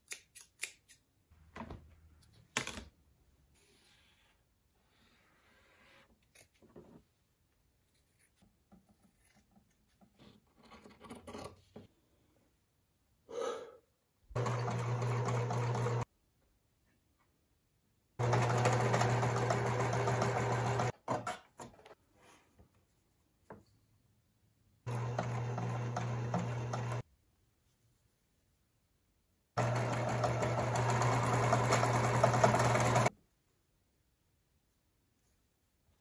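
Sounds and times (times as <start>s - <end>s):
sewing machine stitching: 14.4s - 16.0s, 18.2s - 21.8s, 24.9s - 27.0s, 29.6s - 33.1s.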